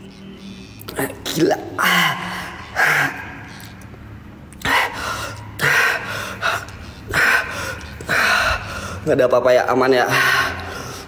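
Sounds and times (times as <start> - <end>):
man breathing heavily: 1.8 - 3.7, 4.6 - 9.2, 10.0 - 11.0.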